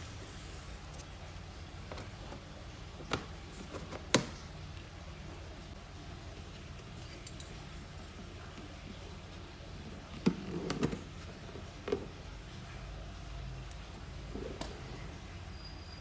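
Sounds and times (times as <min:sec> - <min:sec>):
plastic tubs clicking and knocking: 0:01.8 - 0:04.5, 0:10.0 - 0:12.3.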